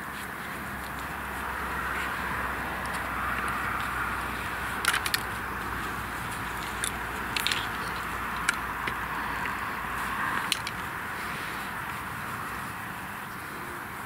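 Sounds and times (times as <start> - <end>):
sharp clicks and knocks: 4.8 - 5.7, 6.3 - 9.6.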